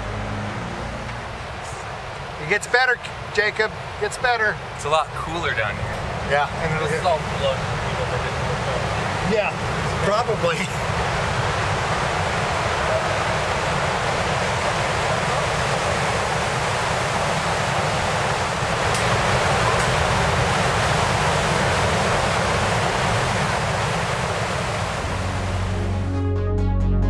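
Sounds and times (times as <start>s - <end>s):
waterfall roaring: 0.0s - 26.0s.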